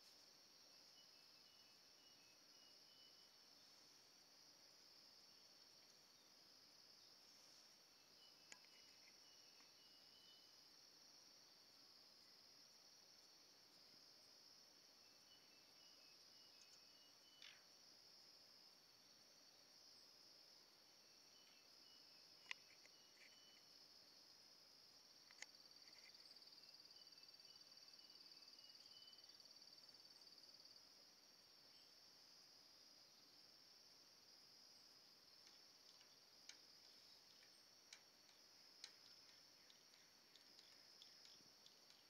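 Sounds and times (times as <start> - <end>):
high-pitched insect chorus: 0.0 - 42.0
sharp clicks: 35.4 - 42.0.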